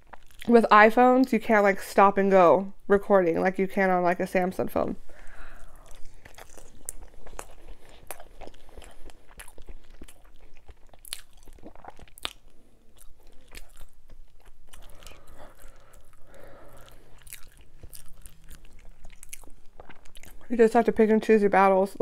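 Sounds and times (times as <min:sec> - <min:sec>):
person chewing crunchy food: 0:00.0 - 0:00.5, 0:05.1 - 0:20.5.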